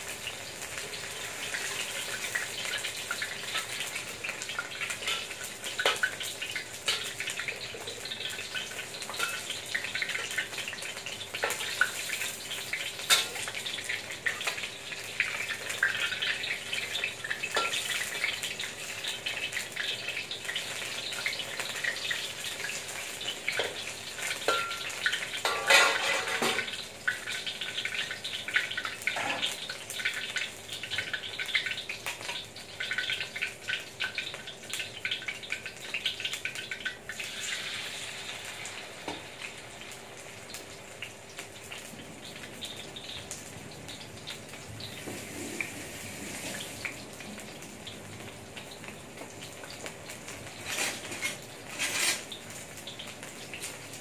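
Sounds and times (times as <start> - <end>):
food sizzling in oil: 0.0 - 54.0
metal spoon scraping wok: 50.6 - 52.4.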